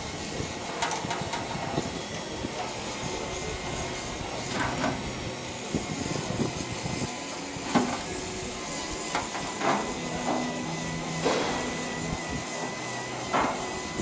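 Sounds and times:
engine shed background noise: 0.0 - 14.0.

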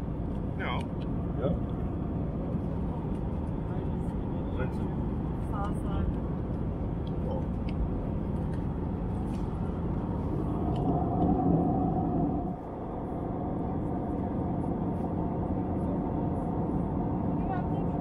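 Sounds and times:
vehicle rumble: 0.0 - 18.0
humming tone: 10.2 - 15.5.

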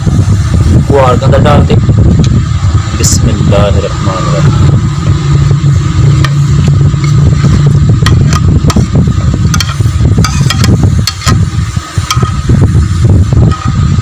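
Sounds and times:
low rumble: 0.0 - 14.0
spoon scraping a ceramic plate: 9.6 - 11.2.

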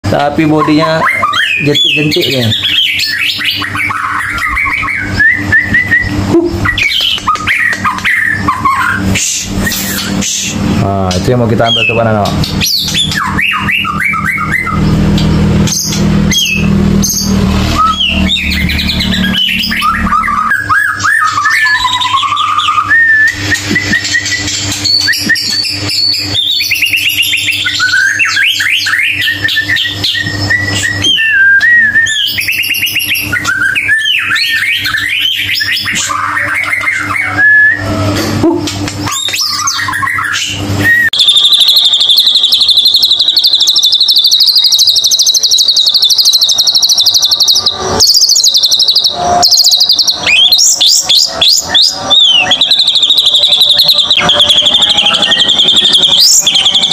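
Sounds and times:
low steady hum: 0.1 - 32.5
high rapid bird trill: 0.1 - 38.1, 39.0 - 56.9
bird whistling song: 0.6 - 10.6, 11.3 - 38.1, 39.0 - 56.9.

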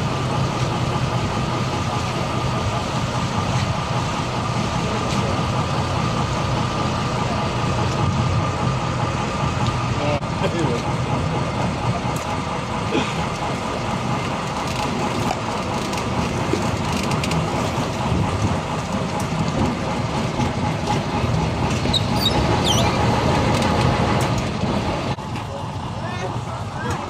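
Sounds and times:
boat engine running: 0.0 - 27.0
water churning around hull: 0.0 - 27.0
brief high squeaks: 21.9 - 23.0.

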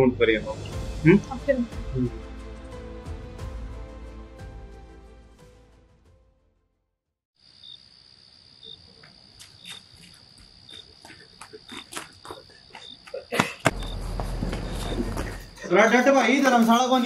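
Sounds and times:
crickets chirring: 7.4 - 17.0
footsteps on dirt path: 8.9 - 15.6.

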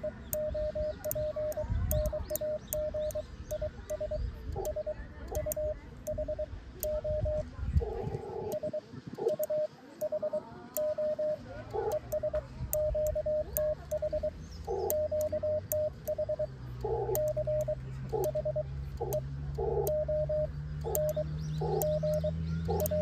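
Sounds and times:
morse code beeps: 0.0 - 23.0.

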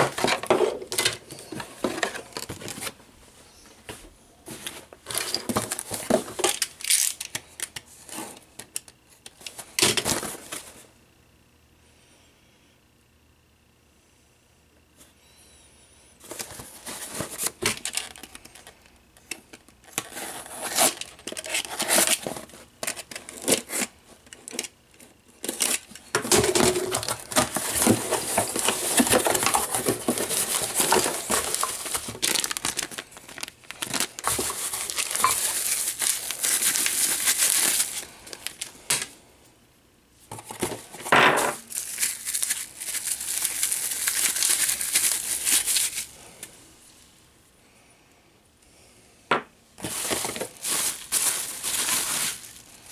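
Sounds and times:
bubble wrap crinkling: 16.2 - 24.6, 25.4 - 39.1, 41.6 - 46.2, 49.8 - 52.9
cardboard box being opened: 25.5 - 38.0.

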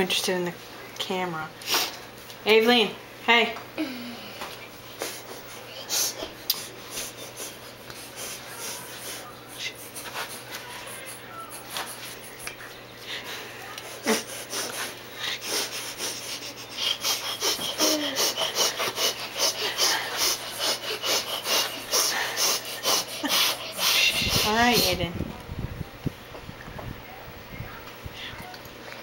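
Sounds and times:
baby huffing breaths: 14.0 - 24.5.

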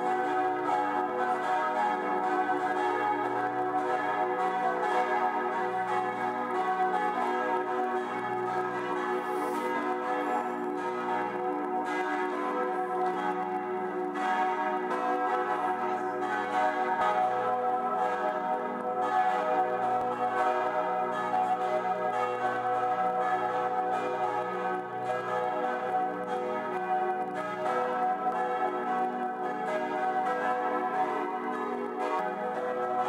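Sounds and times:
church bells pealing: 0.0 - 33.0.

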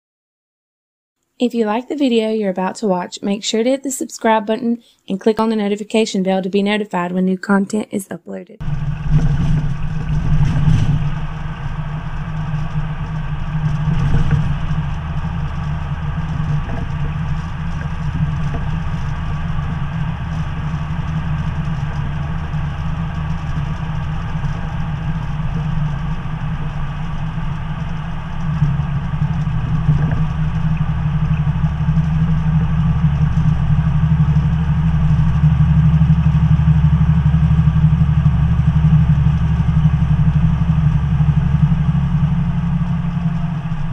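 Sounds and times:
diesel truck engine drone: 8.6 - 43.9
road noise hum: 8.6 - 43.9.

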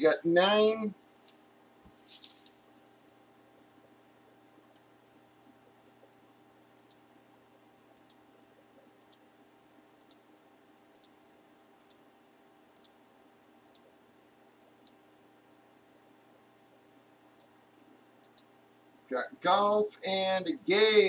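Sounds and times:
low steady hum: 0.0 - 21.0
computer mouse clicks: 4.6 - 4.9, 6.8 - 7.0, 7.9 - 8.2, 9.0 - 9.3, 10.0 - 10.2, 10.9 - 11.2, 11.8 - 12.0, 12.8 - 13.0, 13.6 - 13.9, 14.6 - 15.0, 16.8 - 17.6, 18.2 - 18.5.

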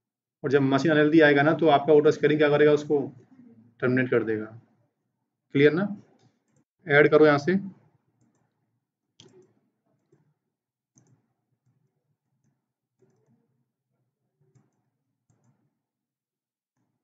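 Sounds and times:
faint computer mouse clicks: 9.2 - 10.3, 11.0 - 13.4, 14.5 - 15.7.

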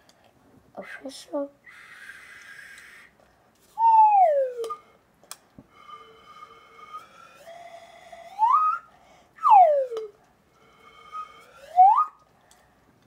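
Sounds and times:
slide whistle: 3.8 - 5.0, 5.7 - 12.2.

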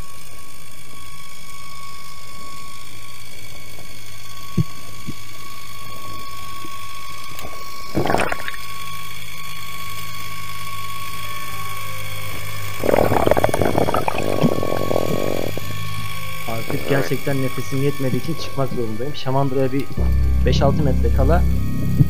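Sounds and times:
motorboat engine underwater: 7.8 - 9.1, 11.0 - 19.1, 19.9 - 22.0
rush of noise: 12.8 - 15.7.

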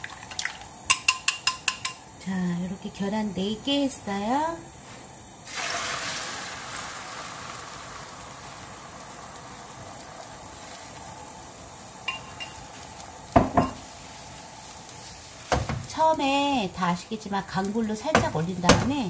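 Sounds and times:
egg sizzling in frying pan: 0.0 - 19.0
knock: 13.4 - 13.8.

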